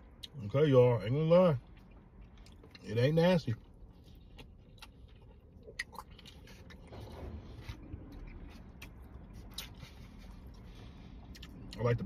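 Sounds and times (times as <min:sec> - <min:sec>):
person chewing: 0:01.6 - 0:03.0, 0:03.6 - 0:11.9.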